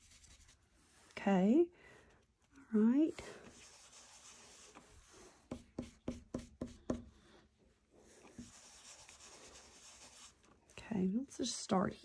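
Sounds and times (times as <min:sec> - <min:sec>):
brush rubbing on paper: 0:00.0 - 0:01.1, 0:03.2 - 0:07.0, 0:08.0 - 0:10.5.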